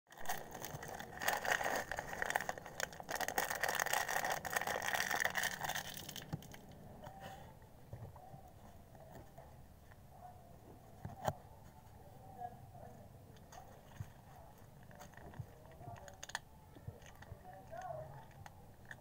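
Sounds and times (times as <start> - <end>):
plastic packet crinkling: 0.1 - 6.8, 14.8 - 17.8.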